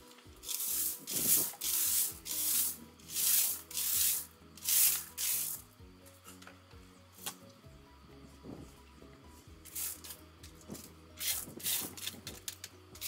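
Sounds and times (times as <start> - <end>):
rake scraping through gravel: 0.0 - 5.7, 9.6 - 13.0.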